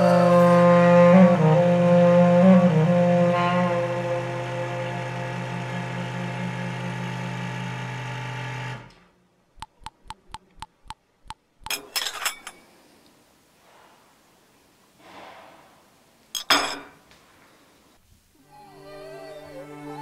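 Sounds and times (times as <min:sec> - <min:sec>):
coffee drops plinking: 0:09.6 - 0:11.0.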